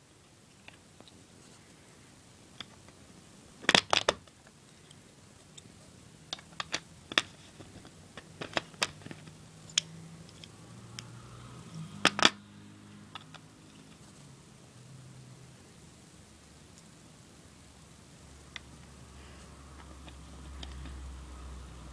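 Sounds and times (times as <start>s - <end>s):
faint low hum: 0.0s - 21.9s
plastic bricks clicking: 6.3s - 10.5s.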